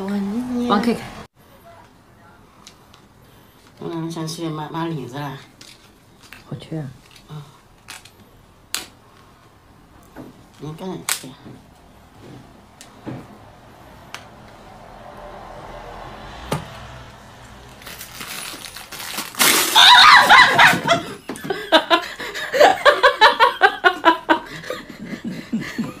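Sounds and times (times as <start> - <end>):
loud yell: 19.7 - 20.9
man laughing hard: 19.8 - 26.0.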